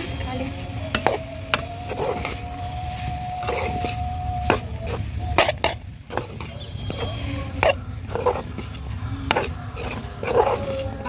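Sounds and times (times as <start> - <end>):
spatula scraping through food: 0.5 - 11.0
spatula knocking pot rim: 3.4 - 10.8.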